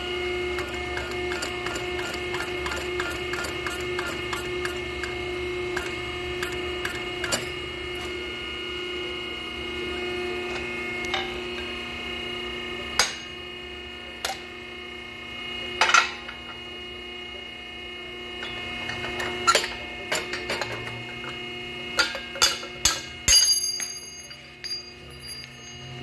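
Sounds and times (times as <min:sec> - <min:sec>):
metal pipe ringing: 0:22.0 - 0:26.0.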